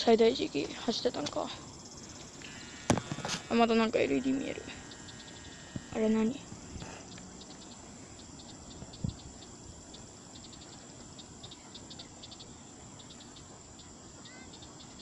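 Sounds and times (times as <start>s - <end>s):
insects chirping: 0.0s - 15.0s
steady high hiss: 0.0s - 15.0s
thump: 2.8s - 3.4s.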